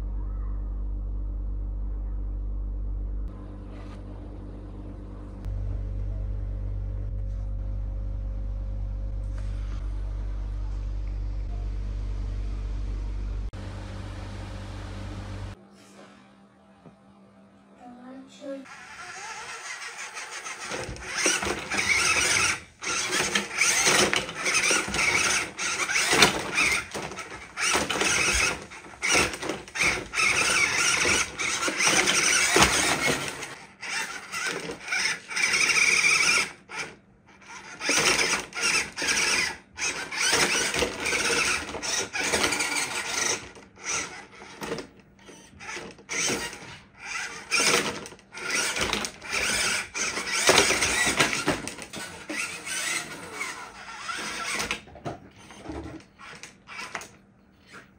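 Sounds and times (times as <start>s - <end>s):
small electric motor whirring: 18.7s - 54.8s, 55.4s - 57.1s.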